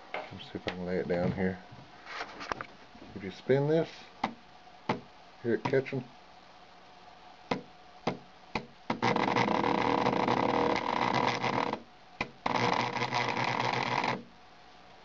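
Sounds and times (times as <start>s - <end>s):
rotary tool motor whirring: 8.9s - 11.8s, 12.4s - 14.2s.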